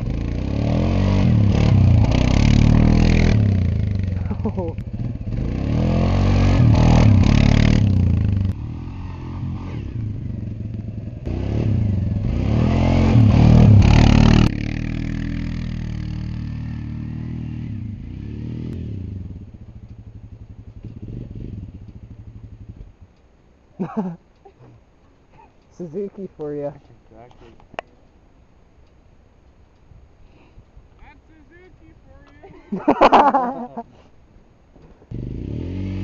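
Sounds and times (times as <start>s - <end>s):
quad engine revving: 0.0s - 19.4s, 35.1s - 36.0s.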